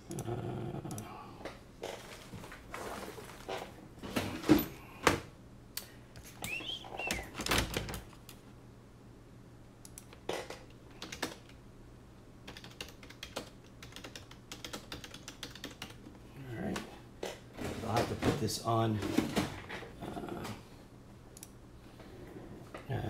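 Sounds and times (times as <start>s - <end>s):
typing on a keyboard: 10.0s - 11.6s, 12.5s - 16.0s.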